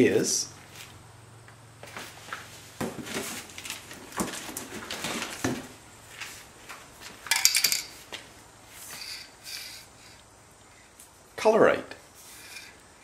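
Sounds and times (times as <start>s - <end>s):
sharp metallic clinks: 7.3s - 8.0s.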